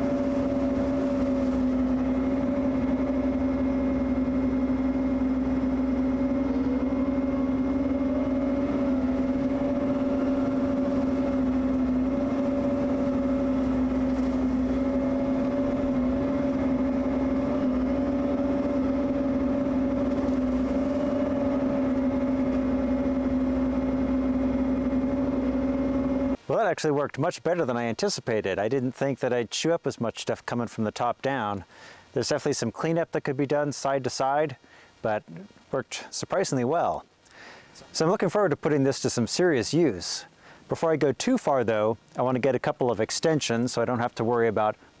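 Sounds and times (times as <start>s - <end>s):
mini excavator engine drone: 0.0s - 26.4s
rotary brush cutter cutting: 0.0s - 26.4s.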